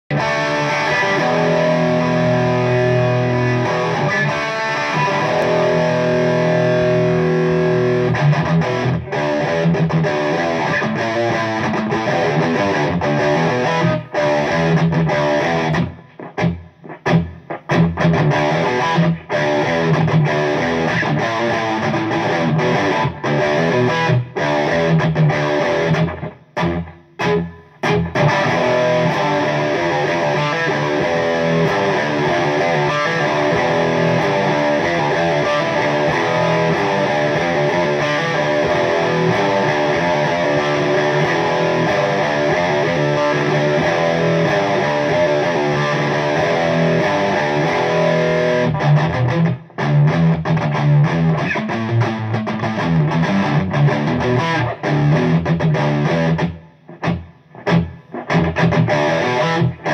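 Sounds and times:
distorted electric guitar: 0.0s - 59.9s.

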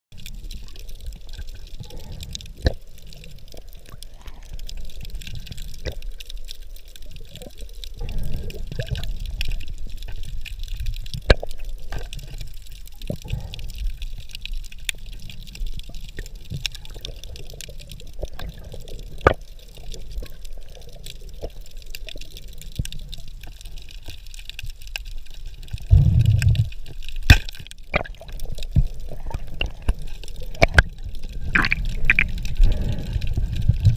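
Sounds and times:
sharp underwater clicks: 0.2s - 33.9s
muffled underwater rush: 25.2s - 33.9s.

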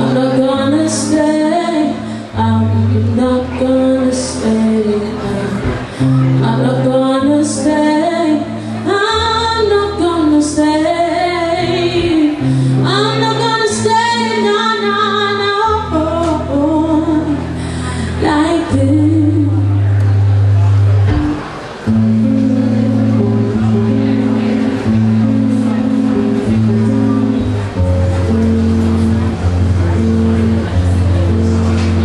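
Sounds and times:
woman singing slow melody: 0.0s - 20.0s
electric guitar chords: 0.0s - 32.0s.

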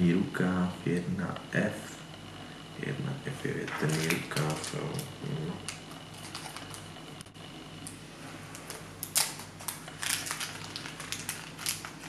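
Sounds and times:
plastic packaging crinkling: 3.7s - 6.9s, 8.5s - 12.0s.

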